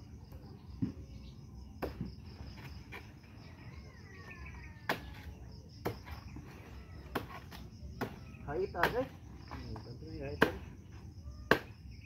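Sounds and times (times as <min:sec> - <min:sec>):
crickets chirring: 0:00.0 - 0:12.0
machete chopping plant stalk: 0:04.9 - 0:05.2, 0:07.1 - 0:08.2, 0:08.8 - 0:09.1, 0:10.4 - 0:10.7, 0:11.5 - 0:11.8.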